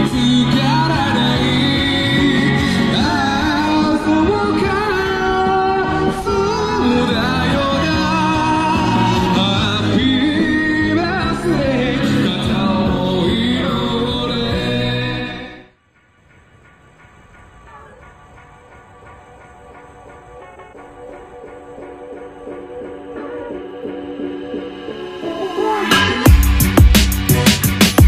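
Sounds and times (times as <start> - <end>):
person singing: 0.0 - 15.6, 22.8 - 27.8
instrumental backing: 16.3 - 28.0.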